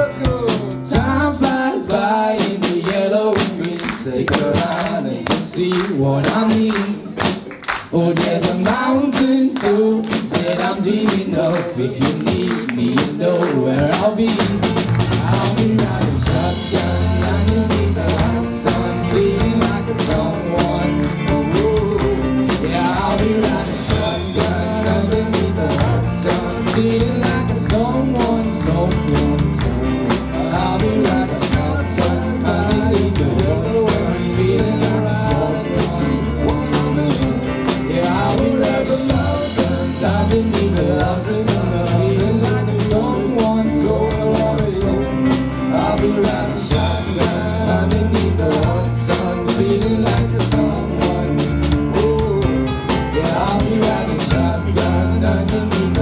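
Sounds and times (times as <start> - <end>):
live band playing: 0.0 - 56.0
person singing: 0.0 - 56.0.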